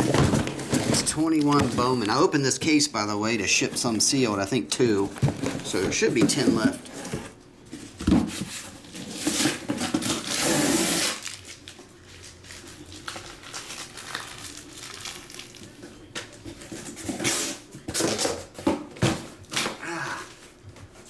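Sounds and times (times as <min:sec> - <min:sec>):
boxes rustling: 0:00.0 - 0:11.5.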